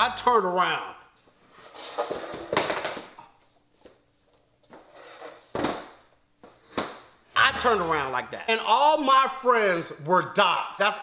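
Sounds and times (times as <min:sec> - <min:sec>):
rustling of person moving: 0:01.0 - 0:07.4.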